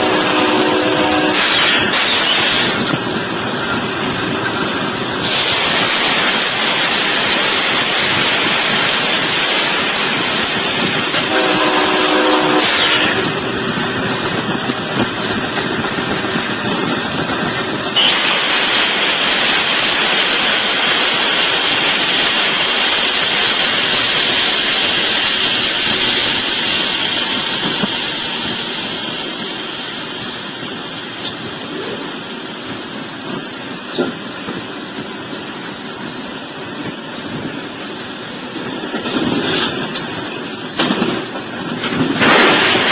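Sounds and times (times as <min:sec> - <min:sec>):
train horn chord: 0:00.0 - 0:01.5, 0:11.2 - 0:13.2
locomotive rumbling at speed: 0:00.0 - 0:42.9.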